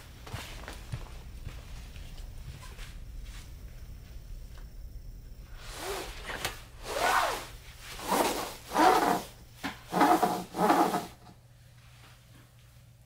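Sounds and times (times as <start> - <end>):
fabric hose rubbing and scraping: 5.6 - 11.3.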